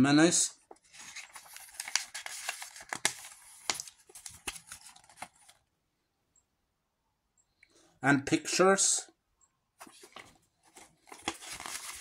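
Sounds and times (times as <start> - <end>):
paper rustling with clicks: 0.7 - 5.6, 9.8 - 12.0.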